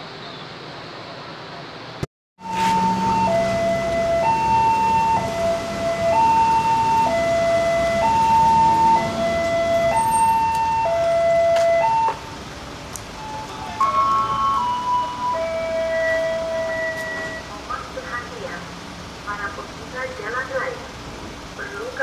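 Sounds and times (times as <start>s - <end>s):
two-tone crossing warning alarm: 2.4s - 12.4s, 13.2s - 17.6s.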